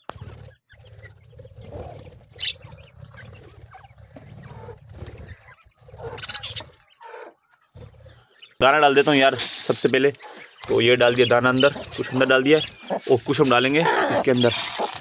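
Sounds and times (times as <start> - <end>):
wings fluttering: 0.0 - 8.3, 9.0 - 15.0
budgerigars chirping: 0.2 - 9.3, 9.9 - 15.0
rustling: 11.8 - 15.0.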